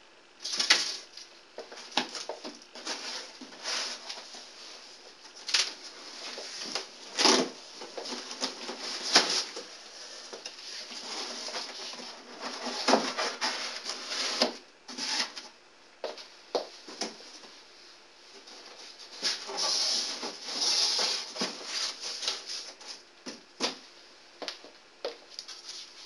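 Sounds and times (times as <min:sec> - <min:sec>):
cardboard scraping and rustling: 0:00.4 - 0:15.4, 0:18.4 - 0:23.0.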